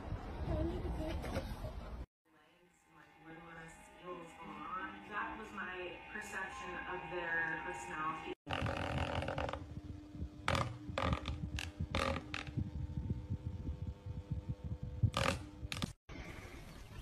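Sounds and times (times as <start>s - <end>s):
electric fan running: 8.5s - 16.0s.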